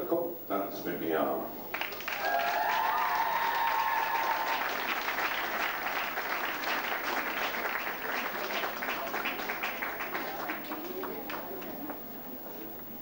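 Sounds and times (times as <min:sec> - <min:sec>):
crowd applauding: 0:01.7 - 0:13.0
high-pitched cheers: 0:02.0 - 0:06.0.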